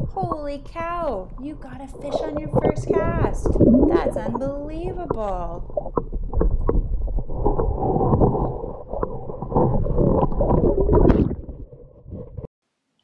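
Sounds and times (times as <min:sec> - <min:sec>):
bubbles popping: 0:00.0 - 0:12.4
underwater water gurgling: 0:00.0 - 0:12.5.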